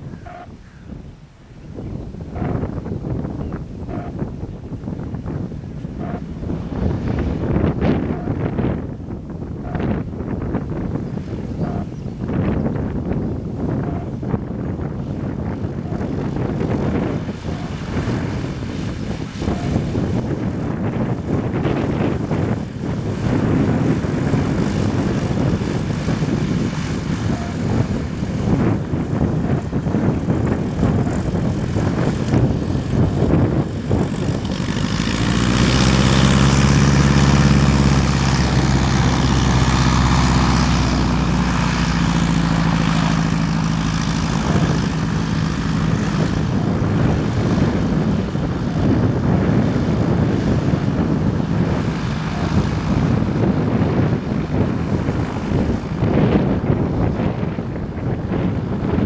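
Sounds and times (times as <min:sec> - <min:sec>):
propeller plane engine taxiing: 0:00.0 - 0:59.0
wind buffeting microphone: 0:00.0 - 0:59.0.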